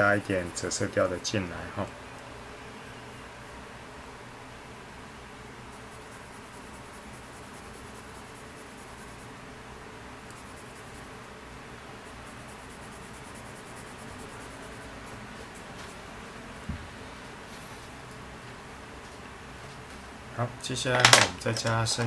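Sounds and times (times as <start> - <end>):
coloured pencil scratching on paper: 5.7 - 9.3, 10.3 - 11.2, 12.0 - 15.4.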